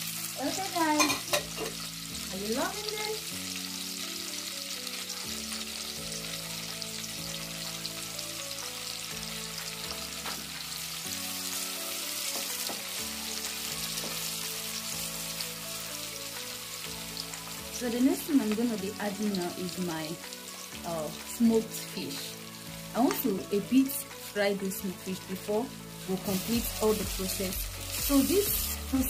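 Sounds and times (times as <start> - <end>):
oil frying in a pot: 0.0 - 29.0
soft music of low chords: 0.0 - 29.0.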